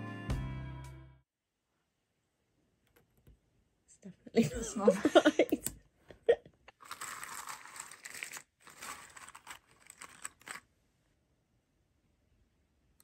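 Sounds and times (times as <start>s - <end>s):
puzzle pieces shuffled on table: 6.7s - 10.7s.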